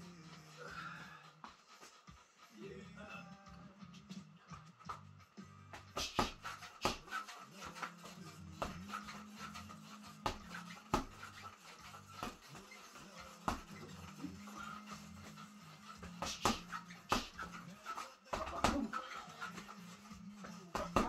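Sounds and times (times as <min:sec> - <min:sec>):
boxing gloves punching reflex bag: 0:05.8 - 0:07.9, 0:10.2 - 0:12.8, 0:13.4 - 0:13.8, 0:15.2 - 0:19.0, 0:20.7 - 0:21.0.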